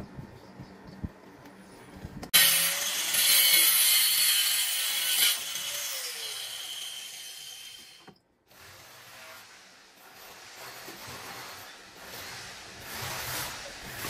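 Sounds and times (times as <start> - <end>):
angle grinder cutting plastic pipe: 2.4 - 9.4.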